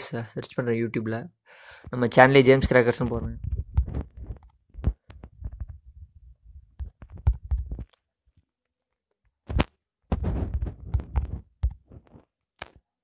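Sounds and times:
rubbing on phone: 9.5s - 12.3s.

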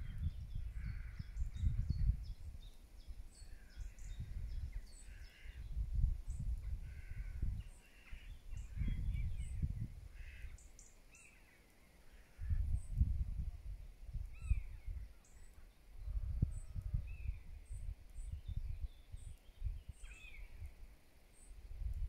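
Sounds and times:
wind buffeting microphone: 0.0s - 10.6s, 12.4s - 15.2s, 16.0s - 20.8s
birds calling harshly: 3.5s - 5.6s, 10.1s - 12.7s.

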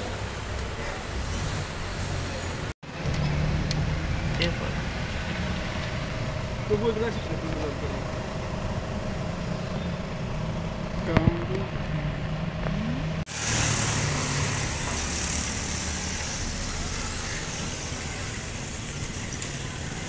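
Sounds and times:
low engine-like hum: 0.0s - 13.3s.

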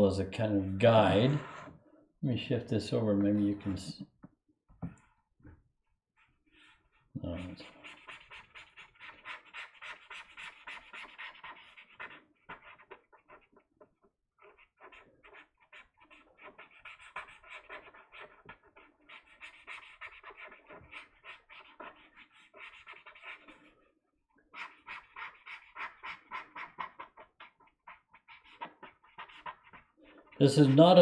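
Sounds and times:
brush pen scratching on paper: 0.6s - 1.8s, 6.2s - 23.8s, 24.5s - 31.0s.

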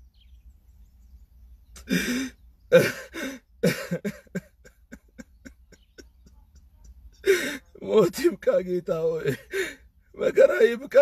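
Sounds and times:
man sobbing: 1.8s - 8.4s, 9.0s - 11.0s.

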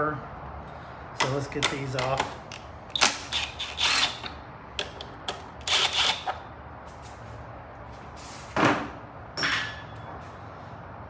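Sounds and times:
hand tools clicking and rattling: 1.2s - 6.3s.

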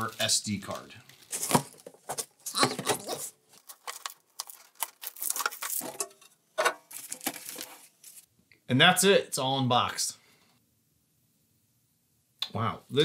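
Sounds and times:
plastic bags crinkling: 0.0s - 6.1s, 6.9s - 8.3s.

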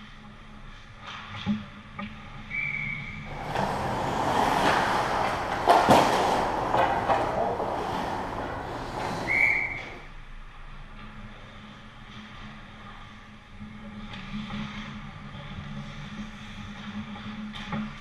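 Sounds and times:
skates scraping ice: 3.3s - 10.0s
referee whistle blasts: 8.5s - 10.0s.

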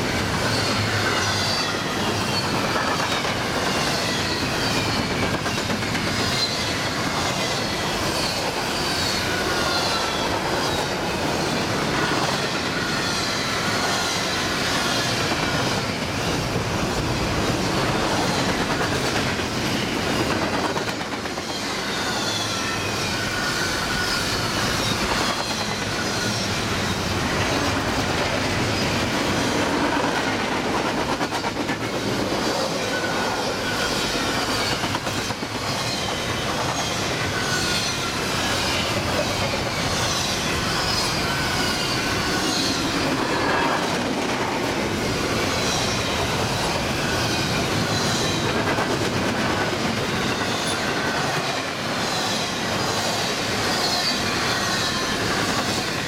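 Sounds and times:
train wheels rumbling on rails: 0.0s - 56.0s
high wheel squeals: 0.4s - 16.4s, 20.8s - 27.7s, 35.7s - 44.0s, 49.8s - 56.0s.

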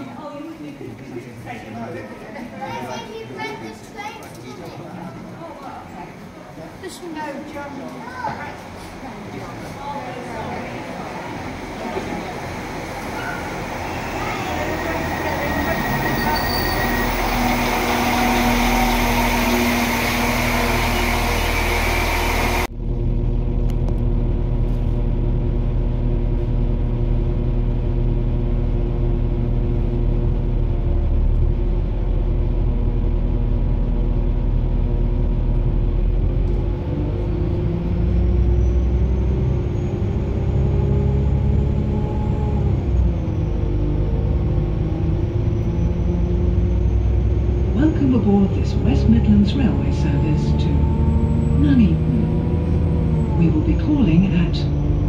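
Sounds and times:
vehicle rumble: 6.2s - 55.0s.

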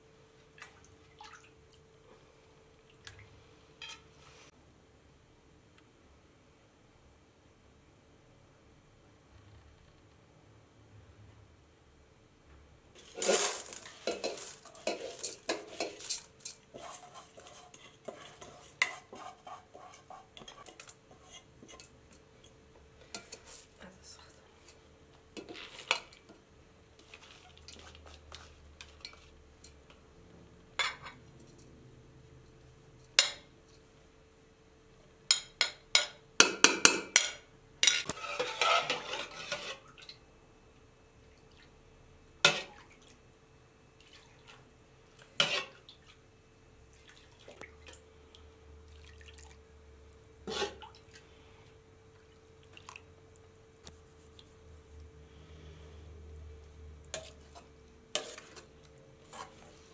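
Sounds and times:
dry grains poured into a pot: 13.0s - 15.4s
ladle scraping a steel pot: 13.0s - 21.9s, 38.0s - 39.9s, 45.4s - 45.8s, 50.4s - 50.8s, 57.1s - 59.9s
utensils clinking on metal pots: 13.0s - 21.9s.

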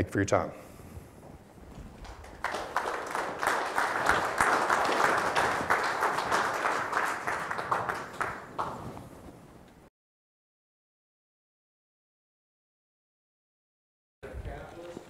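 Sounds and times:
audience applauding: 1.9s - 9.0s.

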